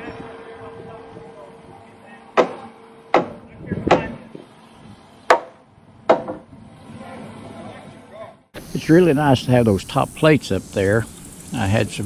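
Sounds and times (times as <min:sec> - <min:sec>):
hammer blows on timber: 0:02.4 - 0:04.5, 0:05.3 - 0:06.5.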